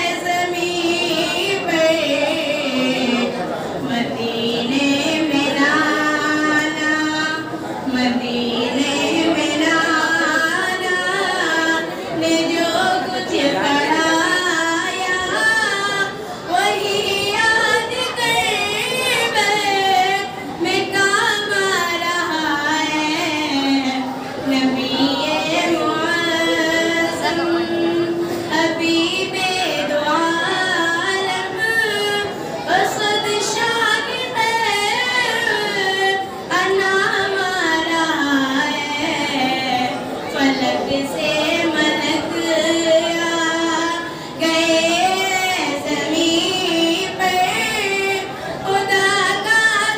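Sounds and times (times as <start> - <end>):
woman singing unaccompanied: 0.0 - 49.9
singer breathing: 44.1 - 44.4.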